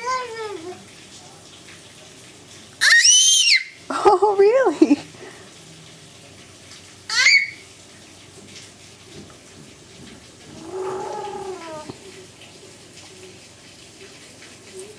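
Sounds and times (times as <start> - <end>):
faint rain hiss: 0.0 - 14.9
baby cooing: 10.5 - 12.0
baby squealing: 10.6 - 11.9.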